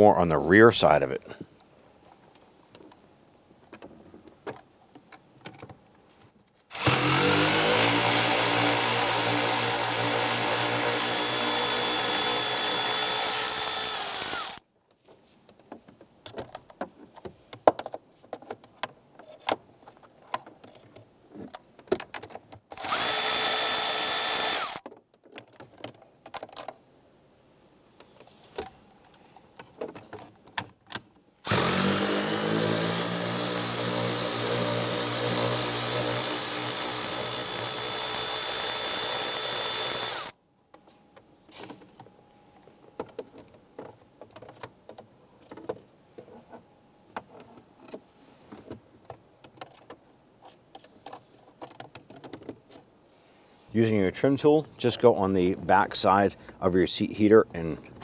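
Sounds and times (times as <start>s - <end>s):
tool and parts clicking and rattling: 3.7s - 7.0s, 14.3s - 23.2s, 24.4s - 26.8s, 39.8s - 52.9s
cordless power tool whining: 6.7s - 14.6s, 22.7s - 24.8s, 31.4s - 40.4s.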